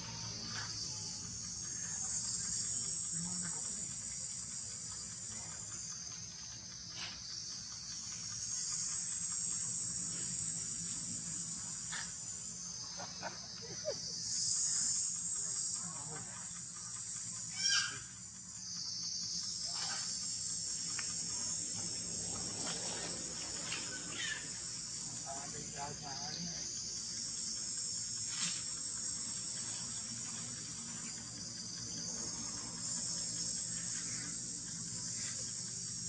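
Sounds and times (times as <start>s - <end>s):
insect chorus buzzing: 0.0s - 36.0s
faint chirps and squeaks: 15.8s - 20.4s, 22.4s - 27.2s.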